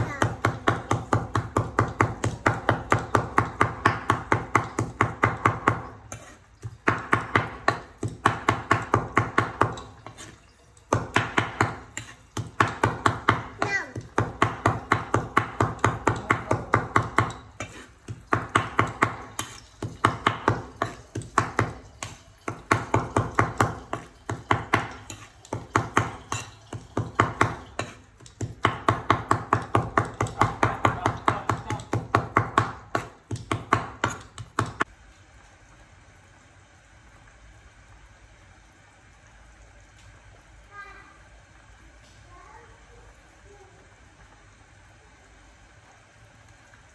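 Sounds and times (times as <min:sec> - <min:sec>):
cleaver chopping on wooden board: 0:27.0 - 0:34.9.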